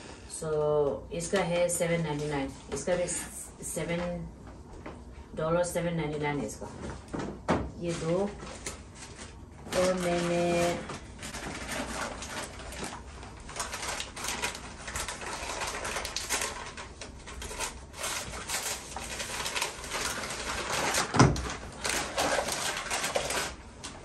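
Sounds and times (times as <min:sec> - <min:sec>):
paper and bag rustling: 0:07.8 - 0:24.0.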